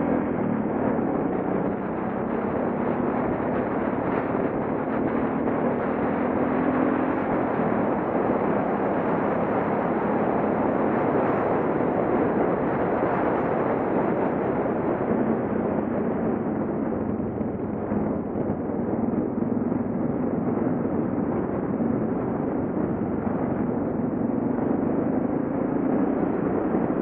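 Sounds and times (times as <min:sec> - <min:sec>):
motorcycle engine hum: 0:00.0 - 0:27.0
wind rushing over microphone: 0:00.0 - 0:27.0.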